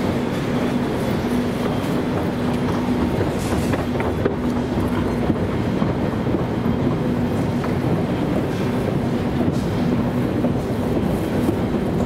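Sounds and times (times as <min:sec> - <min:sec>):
escalator mechanical rumble: 0:00.0 - 0:12.0.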